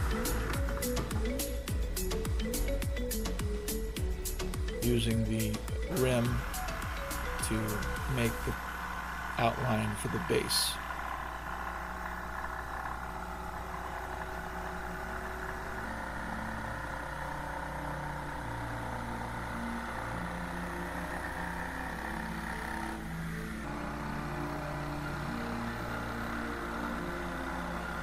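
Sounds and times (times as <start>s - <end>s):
jigsaw cutting plywood: 6.0s - 28.0s.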